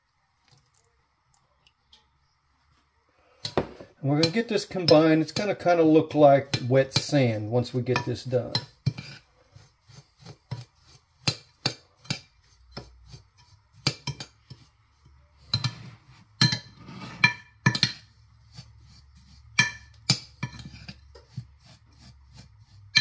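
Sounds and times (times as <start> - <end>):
utensil clinking against bowl: 6.4 - 9.2
soft scraping through crumbs: 7.8 - 11.3, 11.9 - 17.3, 18.0 - 23.0.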